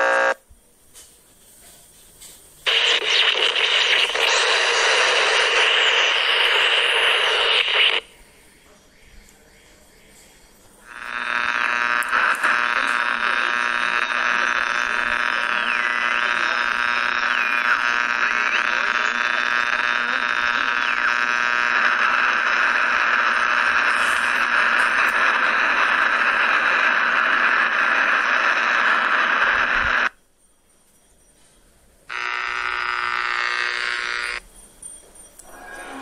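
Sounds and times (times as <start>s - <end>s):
harsh radio buzz: 0.0s - 0.4s, 2.6s - 8.4s, 10.8s - 30.2s, 32.1s - 34.4s, 35.4s - 36.0s
radio static hiss: 0.0s - 1.6s, 2.6s - 30.2s, 32.1s - 34.4s.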